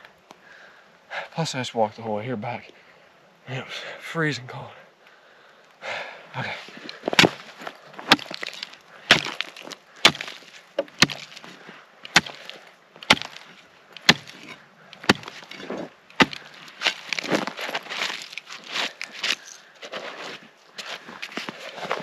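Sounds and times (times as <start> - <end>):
ice chipping and crunching: 6.7 - 22.0.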